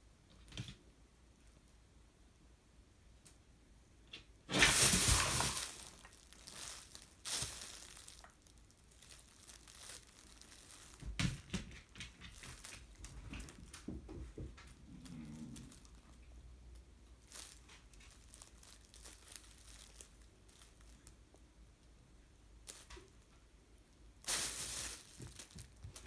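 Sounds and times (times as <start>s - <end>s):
fabric tunnel crinkling and rustling: 4.5s - 21.2s, 24.2s - 26.0s.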